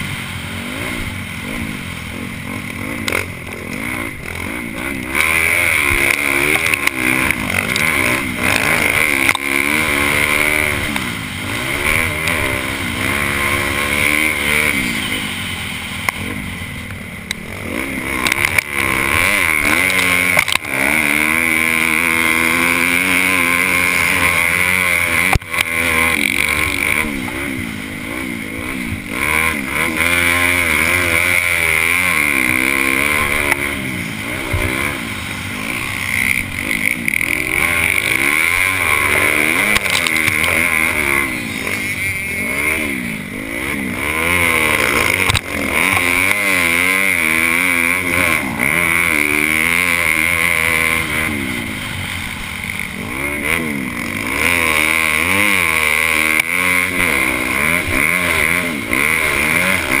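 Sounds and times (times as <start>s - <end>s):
motocross engine revving: 0.0s - 60.0s.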